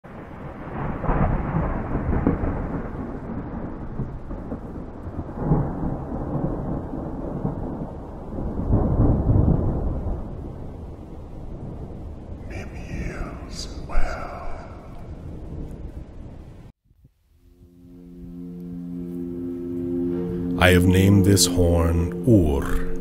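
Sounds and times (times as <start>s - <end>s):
rolling thunder: 0.1s - 16.7s
rain hissing: 4.2s - 17.5s.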